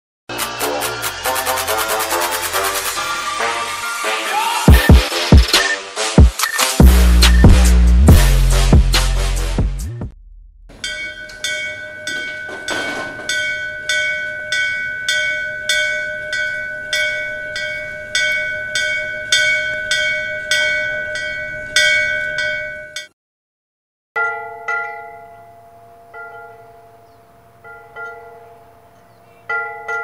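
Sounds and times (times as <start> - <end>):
lower-pitched temple bell: 10.7 - 23.1, 24.2 - 30.0
temple bell ringing: 10.7 - 23.1, 24.2 - 30.0.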